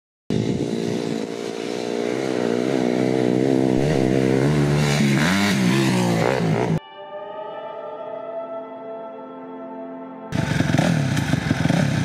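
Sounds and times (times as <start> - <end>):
dirt bike engine revving: 0.3 - 6.8, 10.3 - 12.0.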